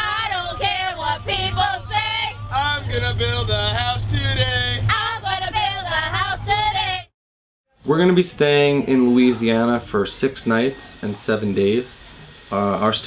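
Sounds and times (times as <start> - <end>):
steady low bass: 0.0 - 6.4.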